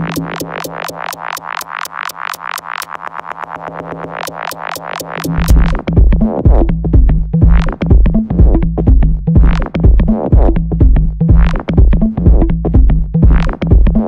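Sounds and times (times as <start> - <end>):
drum machine kick: 0.0 - 2.9, 4.2 - 14.0
synth bass line: 0.0 - 2.9, 3.7 - 14.0
filtered synth sweep: 0.0 - 6.0.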